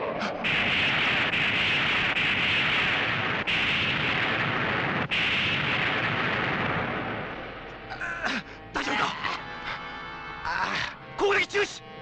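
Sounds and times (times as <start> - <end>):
explosion blast and rush: 0.4 - 7.6.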